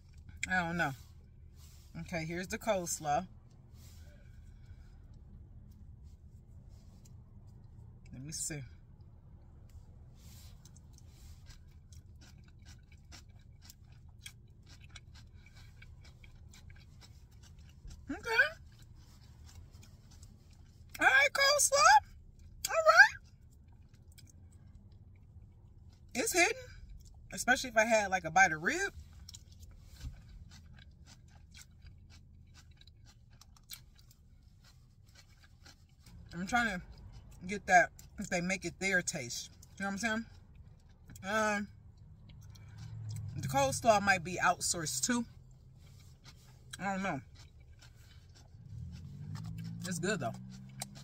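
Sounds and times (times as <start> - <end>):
low steady hum: 0.0 - 51.0
person chewing crunchy food: 9.0 - 21.0, 23.2 - 26.1, 29.0 - 38.2, 41.8 - 43.6, 44.6 - 51.0.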